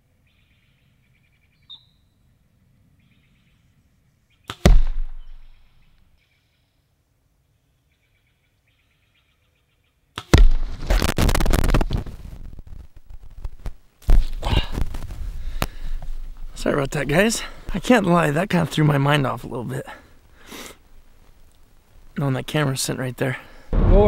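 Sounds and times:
faint bird chirps: 0:00.2 - 0:04.6, 0:05.2 - 0:10.1
arrow striking ground: 0:04.4 - 0:05.8, 0:10.2 - 0:12.2, 0:14.0 - 0:15.7, 0:23.7 - 0:24.0.

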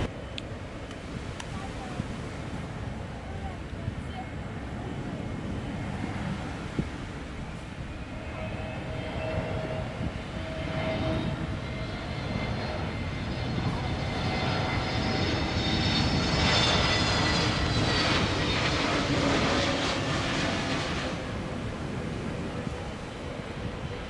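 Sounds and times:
jet airliner engines: 0:00.0 - 0:24.0.

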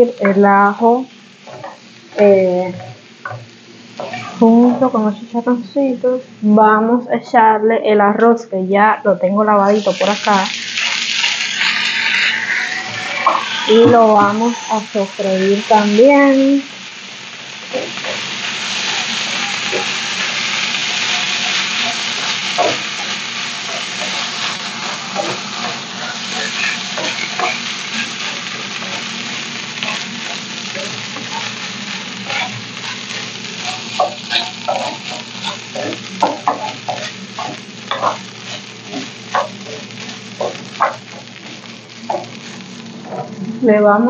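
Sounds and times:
rice sizzling in hot fat: 0:00.0 - 0:06.6, 0:09.4 - 0:44.0
wooden spoon scraping a pan: 0:09.9 - 0:16.5, 0:17.7 - 0:43.4.

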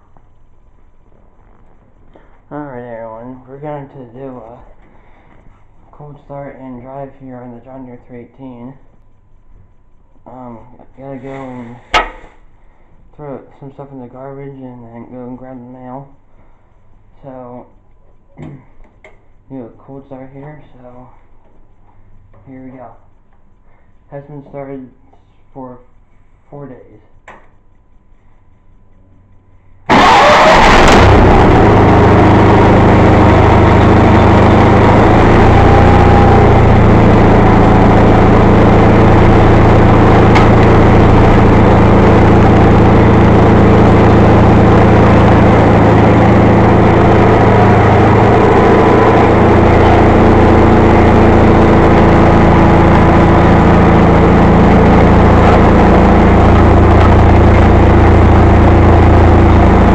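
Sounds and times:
tractor engine starting and running: 0:10.2 - 0:13.5, 0:29.9 - 0:59.9.

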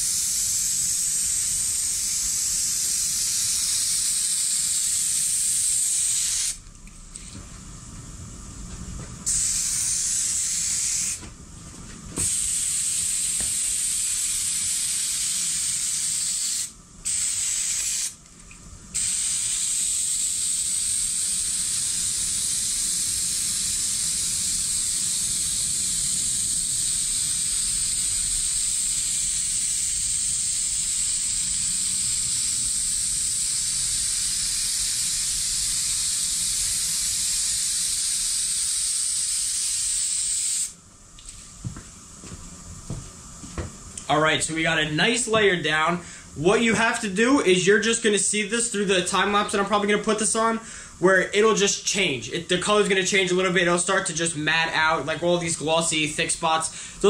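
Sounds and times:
aerosol can spraying: 0:00.0 - 0:06.6, 0:09.2 - 0:11.2, 0:12.2 - 0:18.2, 0:19.0 - 0:40.8.

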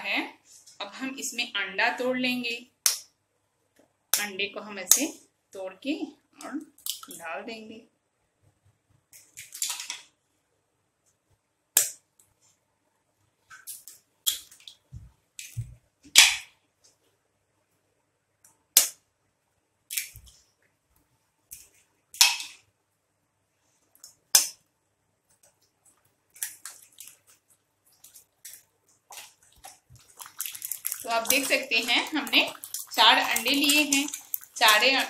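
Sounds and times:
eggshells cracking: 0:26.3 - 0:35.0
oil spitting in a pan: 0:28.0 - 0:35.0.

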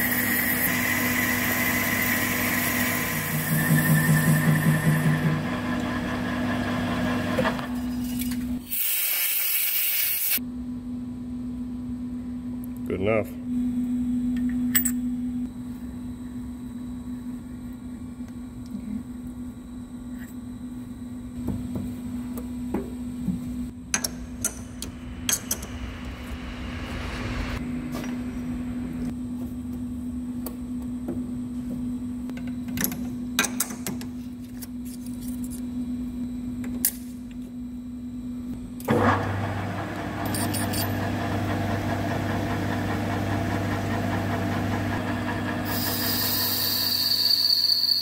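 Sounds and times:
lathe spindle running: 0:00.0 - 0:07.6, 0:38.9 - 0:48.0
steady machine hum: 0:10.4 - 0:33.4, 0:37.5 - 0:47.0.

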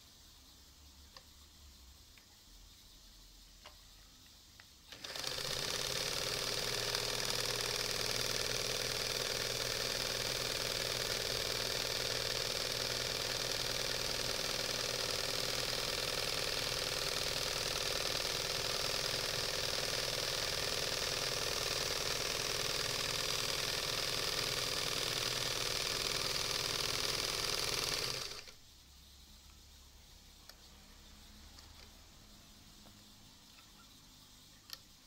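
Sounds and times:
sewing machine running: 0:04.9 - 0:28.6
faint ticks: 0:30.4 - 0:30.8.

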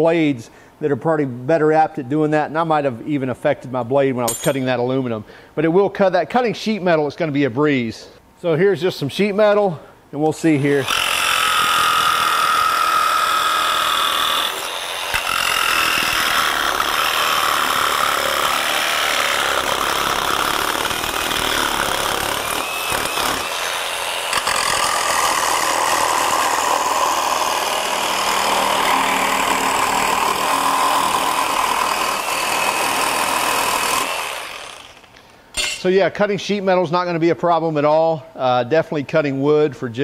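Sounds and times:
jigsaw cutting sheet metal: 0:10.7 - 0:35.1.

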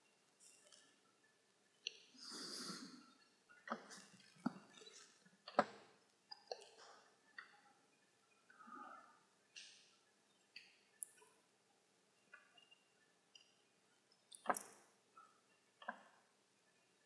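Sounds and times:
soft breath: 0:02.1 - 0:03.1
mouse and keyboard clicks: 0:03.7 - 0:07.5, 0:14.3 - 0:14.9.

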